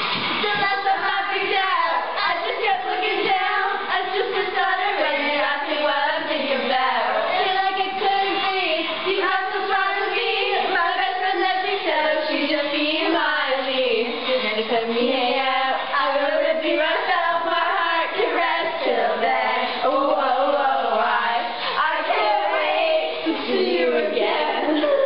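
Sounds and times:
song with singing voices: 0:00.0 - 0:25.0.

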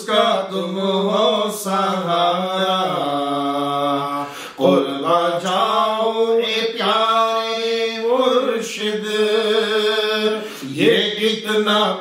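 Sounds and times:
man singing devotional song: 0:00.0 - 0:12.0.

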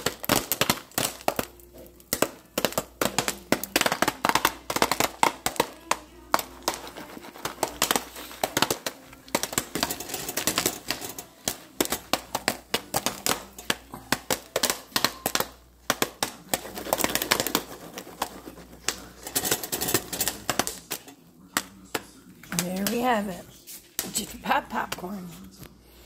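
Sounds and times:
popcorn popping in foil pan: 0:00.0 - 0:25.7.

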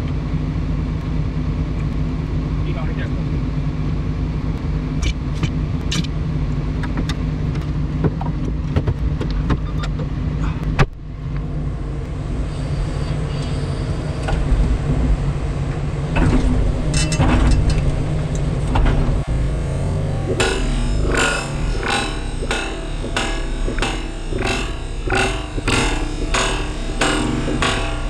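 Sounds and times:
excavator diesel engine running: 0:00.0 - 0:28.0
clicks and knocks of boom: 0:16.2 - 0:28.0
sharp knock: 0:20.3 - 0:28.0.

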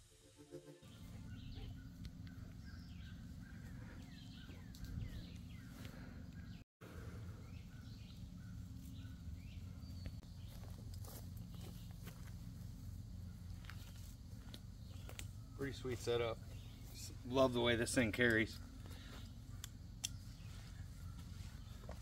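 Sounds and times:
birds chirping: 0:00.8 - 0:22.0.

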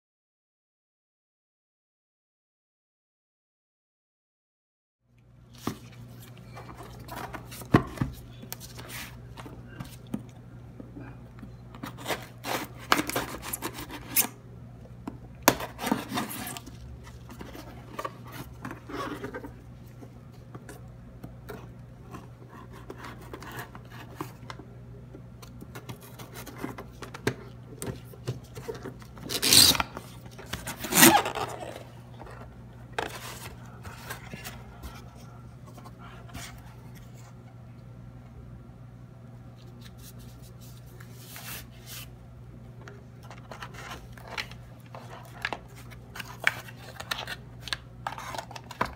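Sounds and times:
scissors cutting packing tape: 0:29.2 - 0:31.8.

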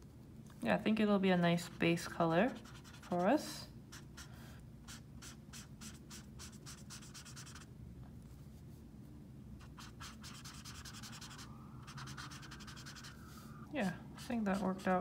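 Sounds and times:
marker scratching on paper: 0:02.5 - 0:07.7, 0:09.6 - 0:15.0.

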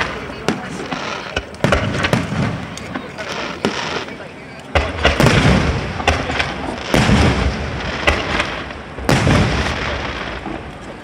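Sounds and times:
firework booms echoing: 0:00.0 - 0:04.0, 0:04.7 - 0:10.7.

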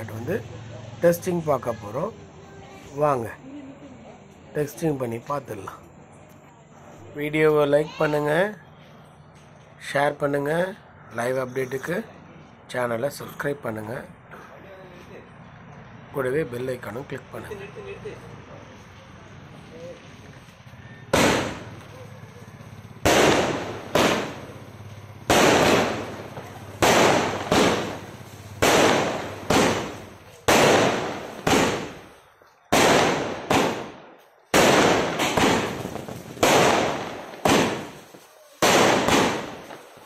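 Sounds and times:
firework cake bangs: 0:21.1 - 0:22.0, 0:23.0 - 0:40.0.

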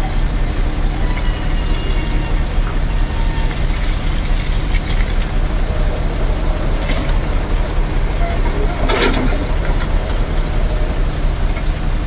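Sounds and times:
excavator diesel engine running: 0:00.0 - 0:12.0
clatter of stones and soil: 0:03.3 - 0:05.7.

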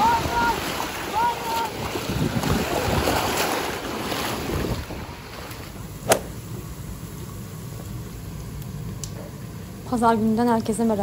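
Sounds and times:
wind buffeting microphone: 0:00.0 - 0:03.4
surf: 0:00.0 - 0:06.4
sharp click: 0:06.1 - 0:06.3.

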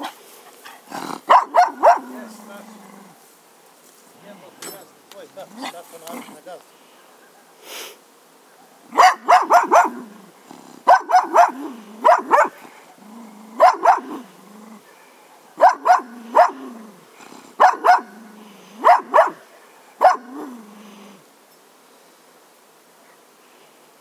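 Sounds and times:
dog growling: 0:00.9 - 0:03.2, 0:09.5 - 0:12.2, 0:13.0 - 0:14.9, 0:16.0 - 0:18.6, 0:20.2 - 0:21.2
dog barking: 0:01.3 - 0:02.2, 0:08.5 - 0:10.1, 0:10.8 - 0:12.6, 0:13.6 - 0:14.2, 0:14.8 - 0:16.8, 0:17.6 - 0:18.2, 0:18.8 - 0:20.6.

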